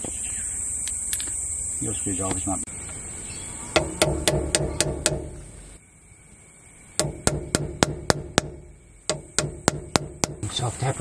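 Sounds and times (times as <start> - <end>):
hammer tapping metal drift: 3.8 - 5.6, 7.0 - 10.6.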